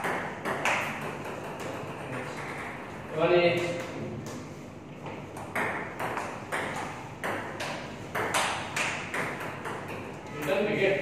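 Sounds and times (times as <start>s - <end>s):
ping pong ball clicking: 0.0s - 2.8s, 5.4s - 10.6s.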